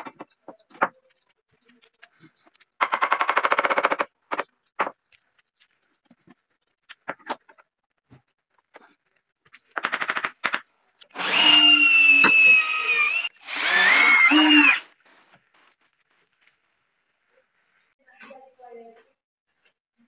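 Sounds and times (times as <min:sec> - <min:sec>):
power drill boring into wood: 0:11.1 - 0:14.9.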